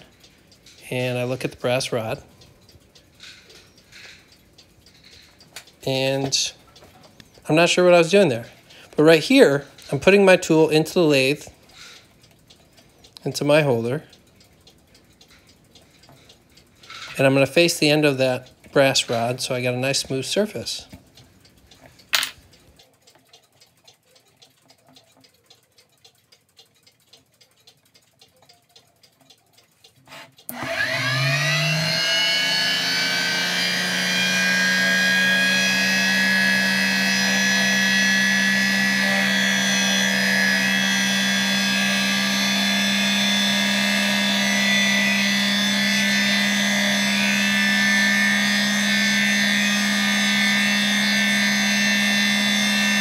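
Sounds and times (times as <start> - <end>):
electric motor whine: 30.5 - 53.0.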